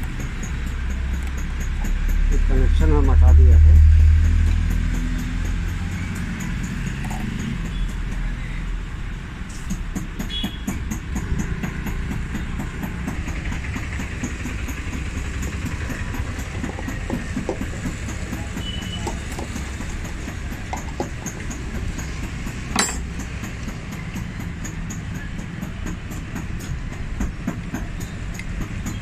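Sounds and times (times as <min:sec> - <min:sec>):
street traffic rumble: 0:00.0 - 0:29.0
metal parts clicking: 0:20.6 - 0:24.2.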